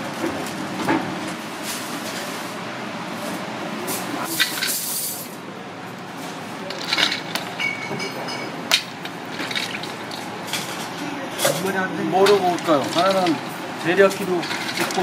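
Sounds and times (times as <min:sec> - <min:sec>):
background chatter: 0:09.8 - 0:15.0.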